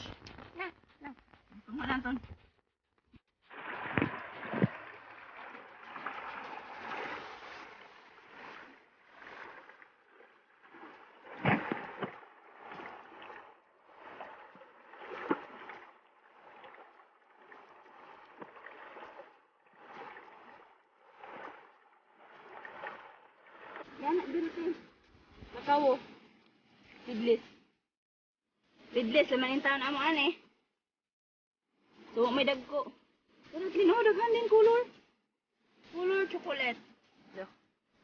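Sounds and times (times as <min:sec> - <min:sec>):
water splashes: 0:03.1 - 0:27.7.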